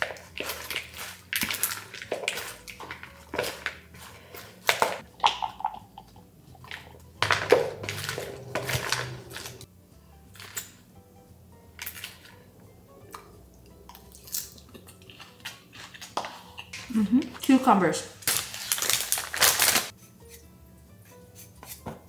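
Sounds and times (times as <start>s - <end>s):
scraping in bowl: 7.2s - 9.6s
salad leaves rustling: 18.2s - 19.9s.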